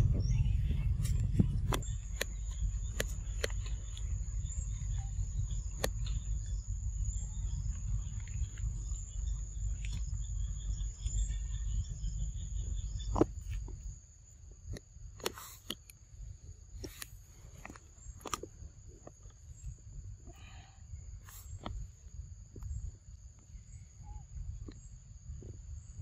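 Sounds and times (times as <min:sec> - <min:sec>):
low rumble: 0:00.0 - 0:14.7
insects droning: 0:00.0 - 0:26.0.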